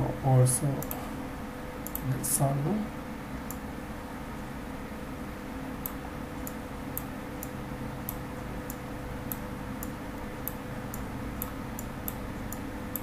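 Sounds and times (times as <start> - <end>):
low room hum: 0.0 - 13.0
light sharp ticks: 1.8 - 2.0, 5.8 - 13.0.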